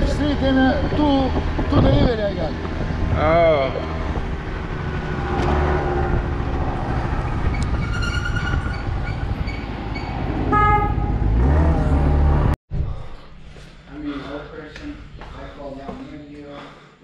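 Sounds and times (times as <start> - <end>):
wind noise: 0.0 - 11.4
vehicle horn toots: 10.5 - 11.3.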